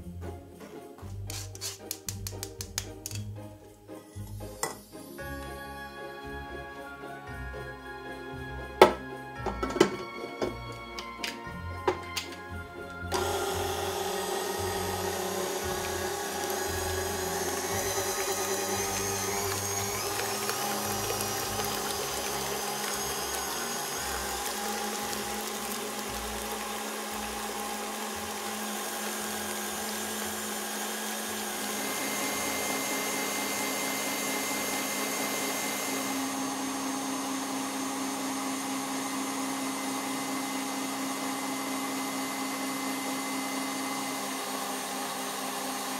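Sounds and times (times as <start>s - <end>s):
stand mixer motor humming: 13.1s - 45.9s
whisk beating in glass bowl: 13.2s - 42.1s.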